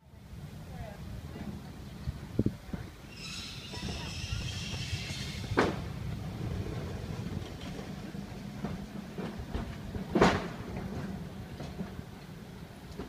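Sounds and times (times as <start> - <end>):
trolley car rumbling on track: 0.1 - 13.0
trolley car clunks: 3.5 - 13.0.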